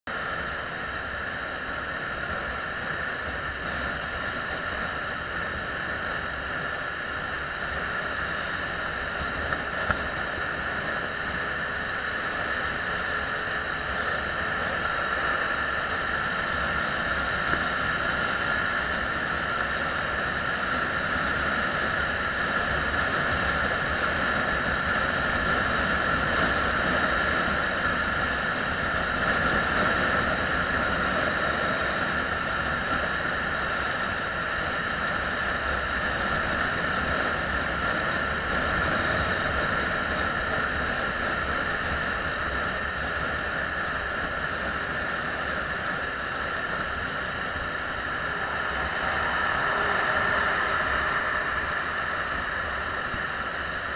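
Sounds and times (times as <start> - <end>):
motorcycle engine drone: 0.1 - 53.9
wind and road noise: 0.1 - 53.9.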